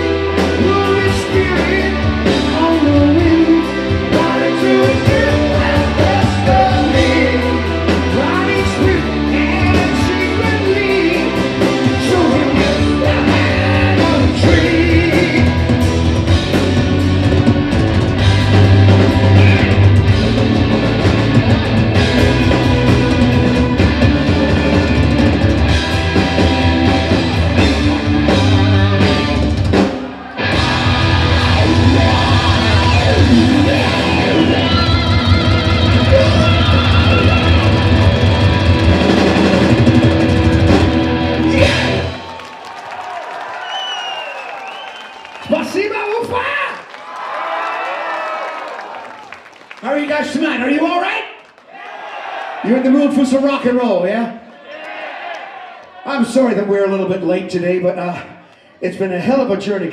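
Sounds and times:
electric guitar: 0.0 - 42.4
drum kit: 0.0 - 42.6
male lead vocal: 0.4 - 15.8, 19.2 - 20.0, 30.6 - 39.1.

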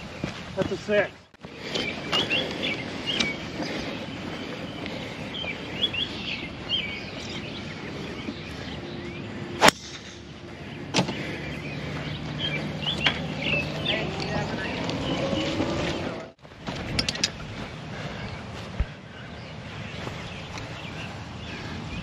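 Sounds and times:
birds chirping: 0.0 - 22.0
golf club striking ball: 9.6 - 10.4.

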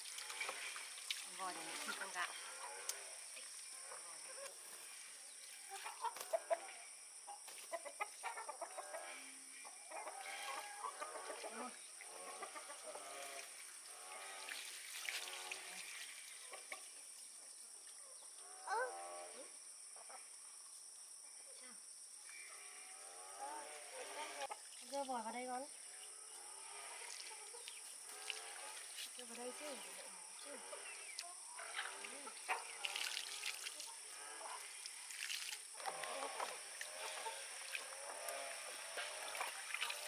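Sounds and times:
chicken clucking and squawking: 7.7 - 11.6.

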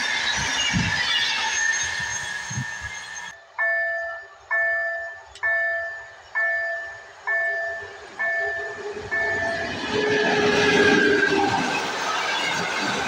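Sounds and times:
electric train approaching: 0.0 - 13.0
level-crossing warning bell dings: 2.5 - 10.4.

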